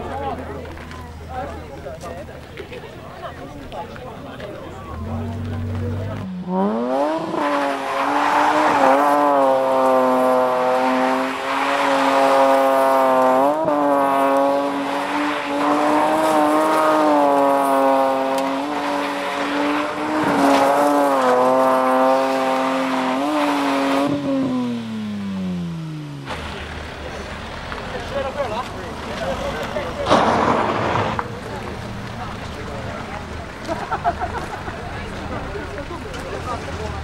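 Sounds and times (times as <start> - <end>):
car engine revving hard: 4.9 - 27.4.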